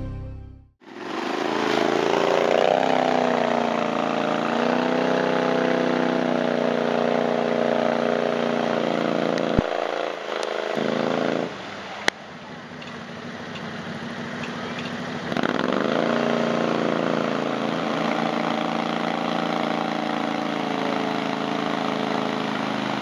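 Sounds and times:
engine running under load: 0:00.9 - 0:23.0
splashing through mud and water: 0:01.0 - 0:06.3.

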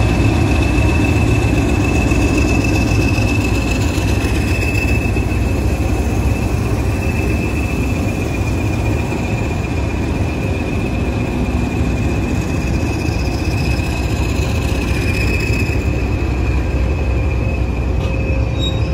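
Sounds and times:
diesel locomotive engines rumbling: 0:00.0 - 0:18.9
wheel flanges squealing on rails: 0:00.0 - 0:18.9.

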